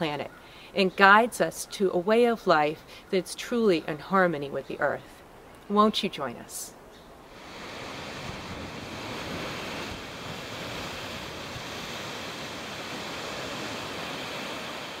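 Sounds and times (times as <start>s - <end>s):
rushing white water roar: 7.3s - 15.0s.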